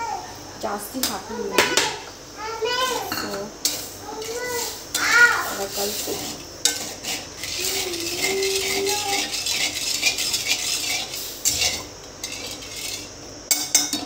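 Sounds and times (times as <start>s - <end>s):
metal spatula scraping a pan: 3.6s - 13.8s.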